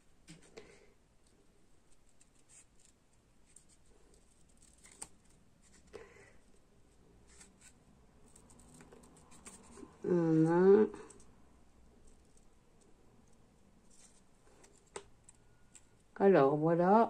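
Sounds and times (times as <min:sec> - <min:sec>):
scissors snipping paper: 0:01.9 - 0:05.4.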